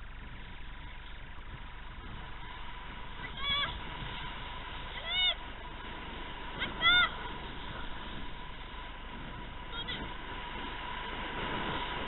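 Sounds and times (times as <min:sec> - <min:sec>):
faint steady whine: 0:00.0 - 0:12.0
skis sliding on snow: 0:00.0 - 0:12.0
wind rushing: 0:01.5 - 0:12.0.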